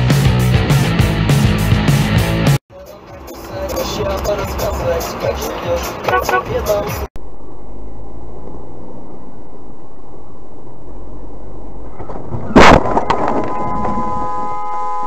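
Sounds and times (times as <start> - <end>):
car driving rumble: 2.8 - 14.4.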